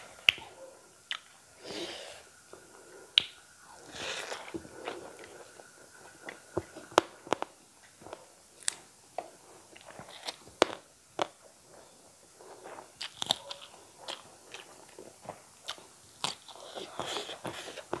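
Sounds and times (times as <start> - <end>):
chewing with sharp crunches: 0.2 - 1.4, 2.5 - 18.0
wet mouth clicks: 1.1 - 1.3, 3.1 - 3.4.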